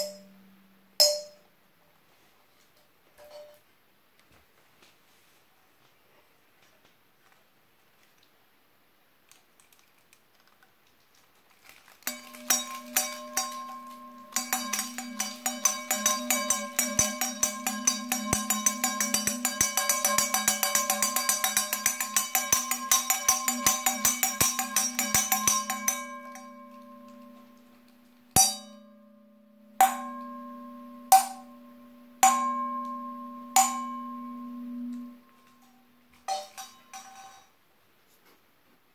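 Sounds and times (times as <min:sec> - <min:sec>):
metal bells ringing: 0:12.1 - 0:37.5.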